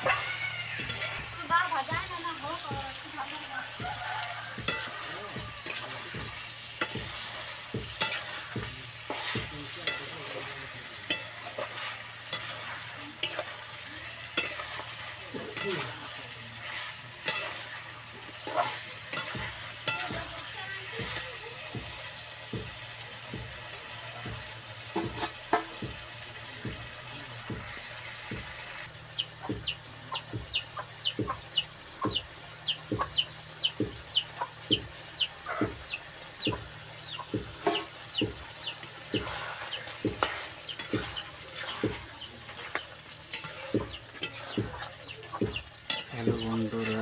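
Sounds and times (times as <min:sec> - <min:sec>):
metal spatula scraping wok: 0:00.0 - 0:22.2, 0:24.8 - 0:25.9, 0:37.0 - 0:47.0
faint frying sizzle: 0:00.0 - 0:47.0.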